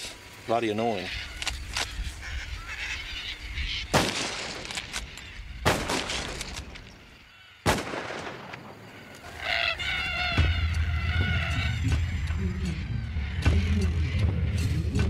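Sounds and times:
cockatoos screeching: 0.7s - 5.6s, 8.7s - 14.7s
sharp loud bangs: 3.9s - 4.8s, 5.6s - 6.6s, 7.6s - 8.8s.

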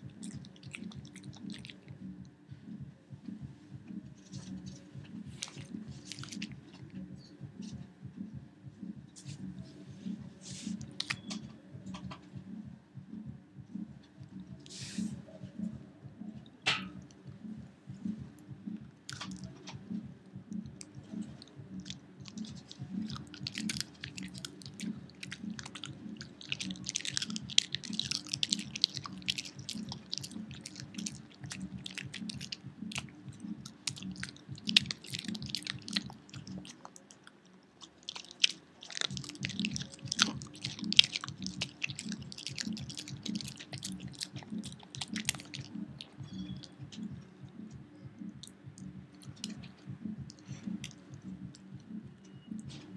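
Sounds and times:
dog chewing rawhide: 5.3s - 6.8s, 21.8s - 37.2s, 37.8s - 46.7s.

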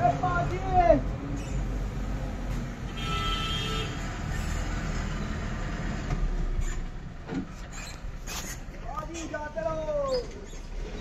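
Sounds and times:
diesel truck engine rumbling: 0.0s - 11.0s.

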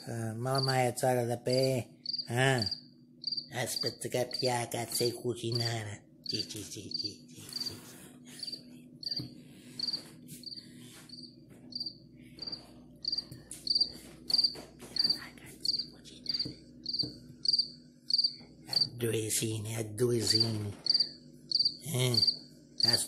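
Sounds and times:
faint low hum: 0.0s - 23.0s
cricket chirping from phone: 2.0s - 4.5s, 6.2s - 7.8s, 8.4s - 9.2s, 9.8s - 18.9s, 20.3s - 23.0s.

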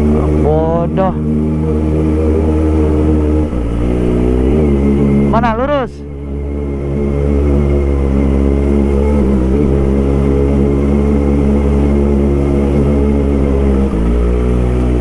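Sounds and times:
motorcycle engine running: 0.0s - 15.0s.

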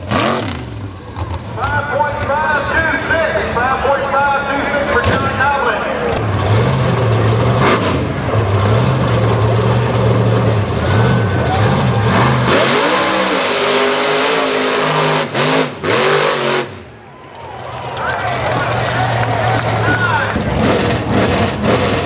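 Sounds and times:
truck engine revving: 0.0s - 22.0s.

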